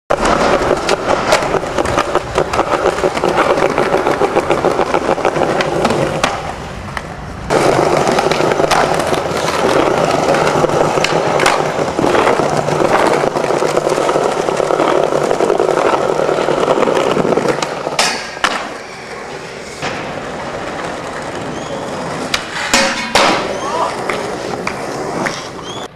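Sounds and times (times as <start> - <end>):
skateboard clacks: 0.1 - 25.9
skateboard wheels rolling: 0.1 - 25.9.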